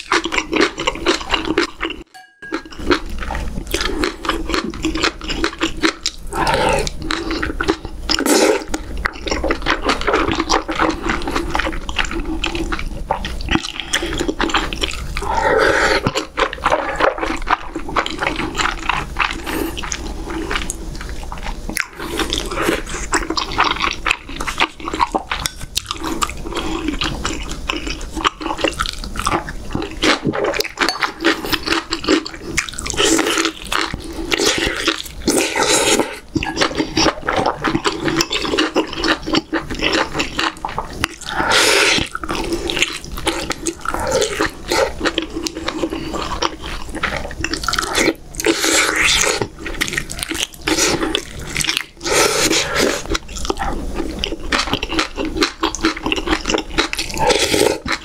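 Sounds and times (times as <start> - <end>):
wet chewing and slurping: 0.0 - 58.0.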